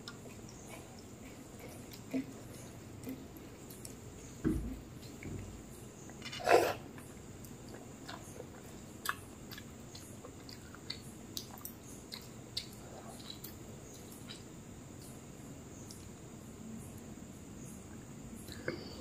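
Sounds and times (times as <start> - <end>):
person chewing with mouth clicks: 0.0 - 4.0, 6.6 - 14.5.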